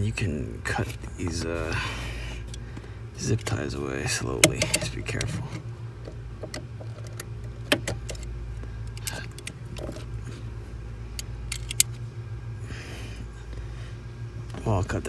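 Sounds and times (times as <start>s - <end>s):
steady low hum: 0.0s - 15.0s
metallic clicks and rattles: 4.3s - 10.1s, 11.2s - 12.0s.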